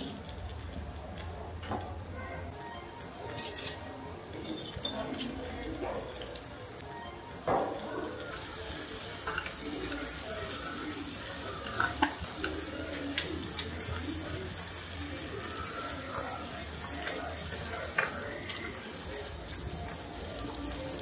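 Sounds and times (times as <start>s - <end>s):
stew bubbling in a pot: 7.7s - 21.0s.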